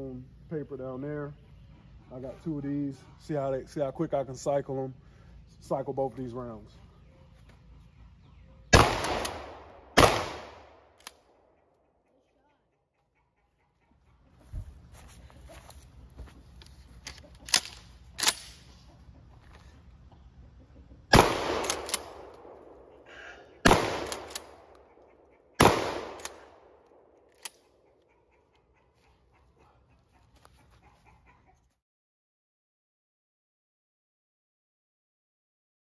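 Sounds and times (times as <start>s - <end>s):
shotgun blasts echoing: 8.7s - 11.0s, 21.1s - 24.8s, 25.6s - 27.1s
shotgun action clacking: 17.0s - 18.7s, 21.1s - 22.6s, 23.6s - 24.8s.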